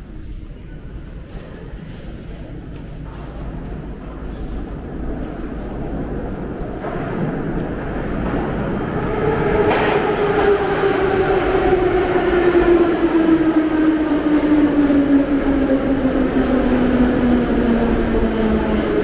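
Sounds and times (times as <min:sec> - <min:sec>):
train wheels rumbling: 0:02.9 - 0:19.0.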